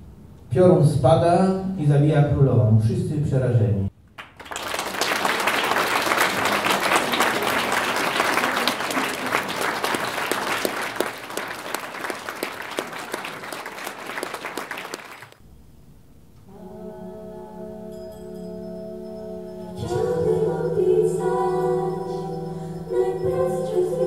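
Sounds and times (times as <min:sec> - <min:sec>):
audience applauding: 0:04.1 - 0:15.4
person singing long held note: 0:16.5 - 0:24.0.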